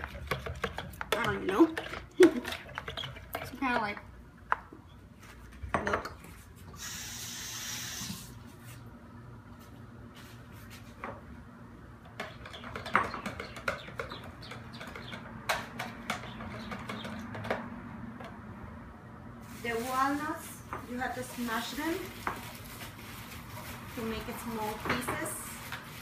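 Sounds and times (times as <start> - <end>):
knocks and scrapes on plastic bowl: 0.0 - 4.0
utensil stirring thick mixture: 0.0 - 4.0.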